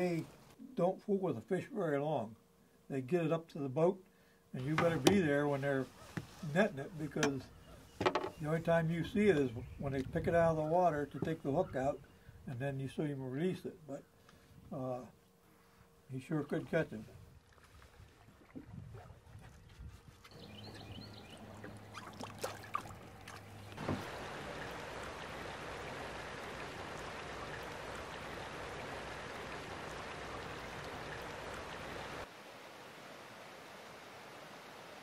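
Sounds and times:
low hum: 0:12.0 - 0:33.0
river water rushing: 0:20.4 - 0:35.0.

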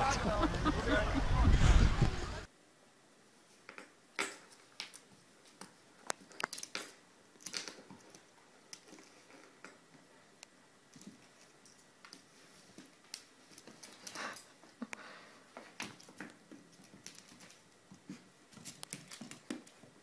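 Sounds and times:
dogs scuffling and mouthing toy: 0:03.5 - 0:10.3, 0:10.9 - 0:20.0.

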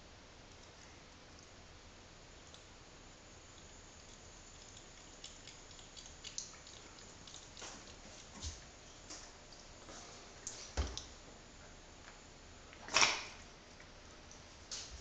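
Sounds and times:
cat lapping water: 0:02.4 - 0:08.8.

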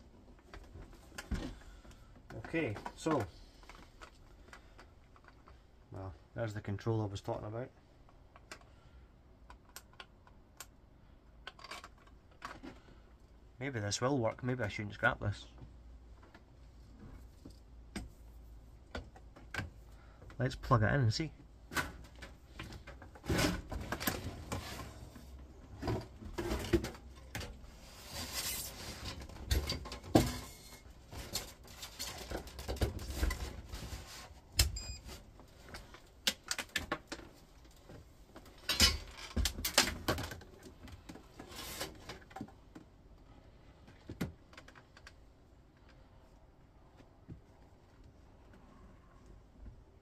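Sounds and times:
knocks and clicks of handling: 0:18.8 - 0:20.4.

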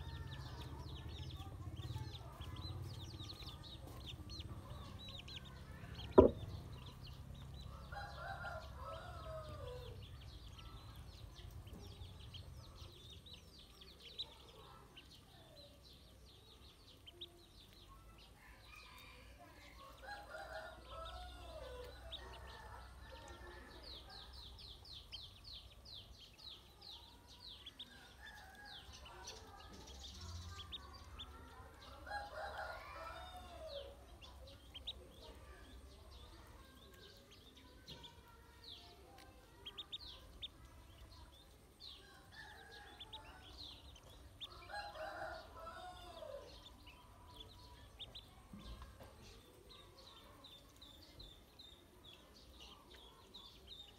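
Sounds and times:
ducklings peeping: 0:00.0 - 0:53.9
rooster crowing: 0:44.5 - 0:46.6.

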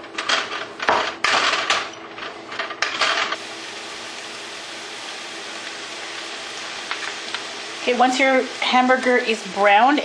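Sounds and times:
meat sizzling in a pan: 0:03.4 - 0:10.0.

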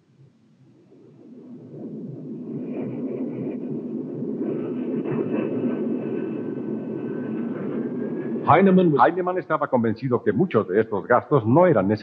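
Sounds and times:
jet engine rumble: 0:00.0 - 0:12.0.

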